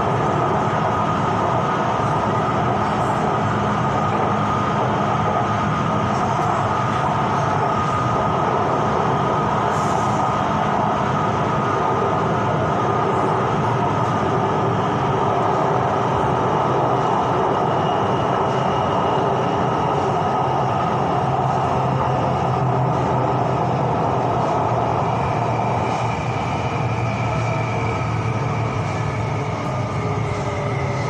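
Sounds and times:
high train whine: 0.0s - 31.0s
train wheels rumbling on rail: 0.0s - 31.0s.

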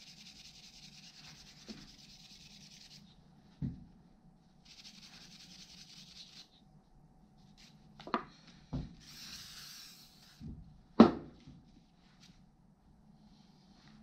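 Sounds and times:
steady hiss: 4.6s - 6.5s, 9.0s - 10.4s.

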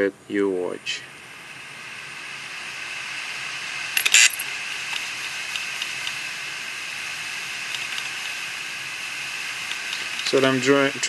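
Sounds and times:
hard drive platters whirring: 0.4s - 11.0s
hard drive head clicks: 4.0s - 6.2s, 7.7s - 8.4s.

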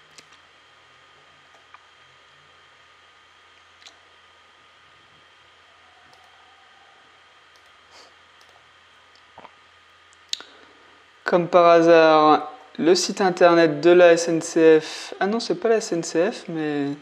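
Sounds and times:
room noise hiss: 0.0s - 17.0s
computer mouse clicks: 6.1s - 6.4s, 7.5s - 7.8s, 8.4s - 8.6s.

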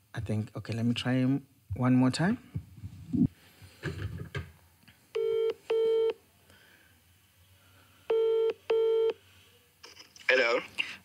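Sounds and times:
telephone ringback tone: 5.2s - 6.2s, 8.1s - 9.2s.

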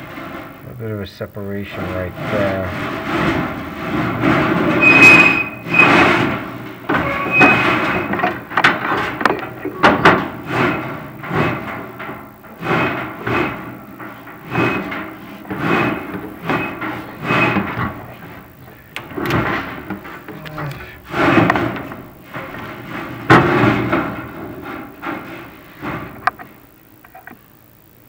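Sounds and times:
high squeaks: 4.6s - 11.7s.

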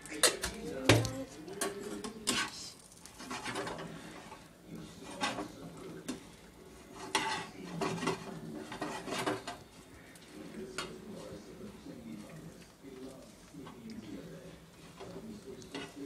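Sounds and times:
spatula scraping frying pan: 1.6s - 9.9s.

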